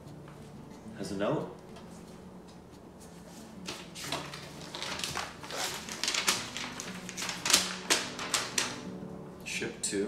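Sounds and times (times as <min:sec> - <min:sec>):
paper rustling and crinkling: 0:03.1 - 0:08.9.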